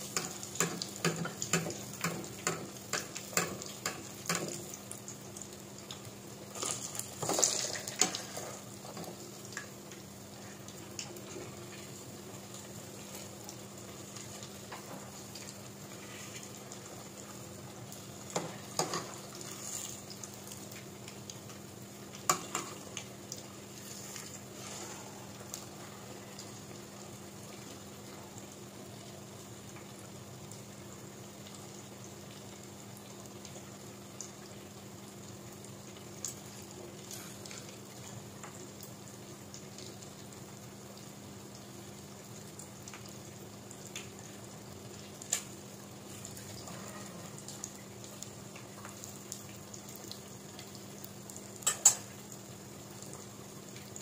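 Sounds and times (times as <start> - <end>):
eggs deep-frying in oil: 0.0 - 54.0.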